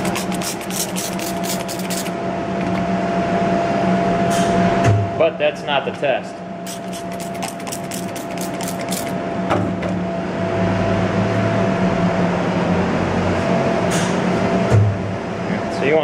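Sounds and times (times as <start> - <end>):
spray bottle squirting: 0.0 - 2.8, 6.7 - 9.2
steady background hum: 0.0 - 16.0.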